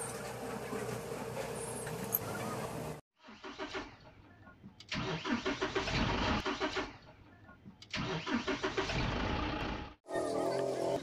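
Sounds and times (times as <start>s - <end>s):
pulsing engine start effect: 5.0s - 6.9s, 8.0s - 10.0s.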